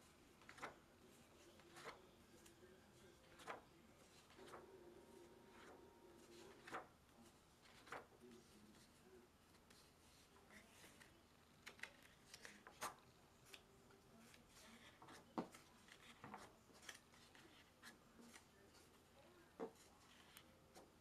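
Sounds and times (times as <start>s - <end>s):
paper rustling: 0.3s - 21.0s
soft paper ticks: 9.5s - 21.0s.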